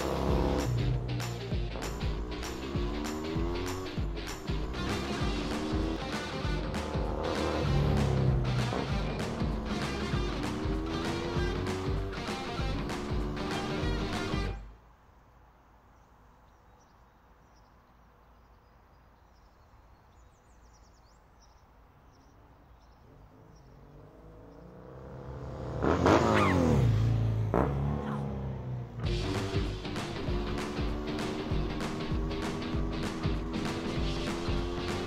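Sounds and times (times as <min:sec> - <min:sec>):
motorcycles racing past: 0:00.0 - 0:14.6, 0:23.7 - 0:35.0
faint bird chirps: 0:15.9 - 0:25.0.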